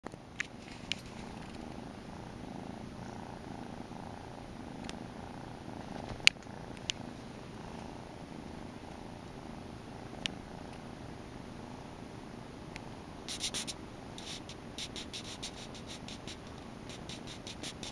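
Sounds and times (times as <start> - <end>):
kitten purring: 0.9 - 12.0, 13.3 - 17.9
sharp clicks: 12.8 - 17.9.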